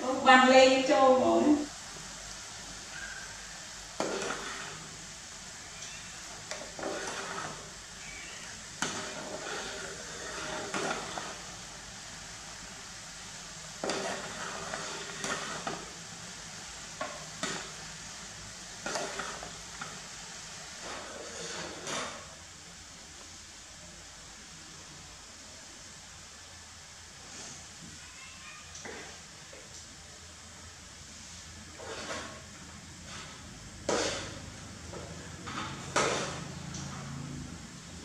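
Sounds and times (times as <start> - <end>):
porridge bubbling: 0.9 - 28.1, 28.8 - 38.0
metal ladle scraping a pan: 3.9 - 5.0, 5.6 - 11.6, 13.8 - 16.0, 16.9 - 17.9, 18.8 - 20.1, 20.7 - 22.3, 31.6 - 36.6.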